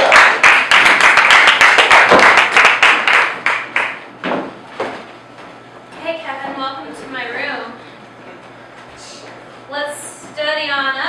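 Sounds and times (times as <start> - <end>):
audience applauding: 0.0 - 4.0.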